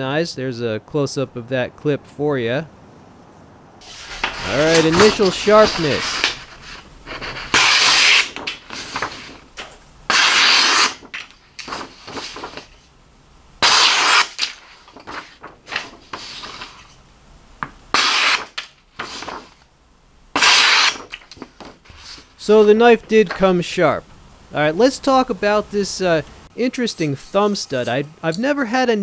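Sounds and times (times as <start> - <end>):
knife slicing paper: 3.8 - 12.8, 13.6 - 17.0, 17.9 - 19.6, 20.4 - 22.3
paper rustling: 3.8 - 12.9, 13.6 - 17.0, 17.9 - 19.6, 20.4 - 23.6.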